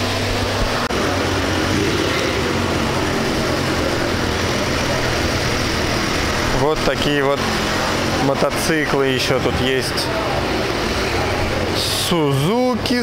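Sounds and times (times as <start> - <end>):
vehicle engine idling: 0.0 - 13.0.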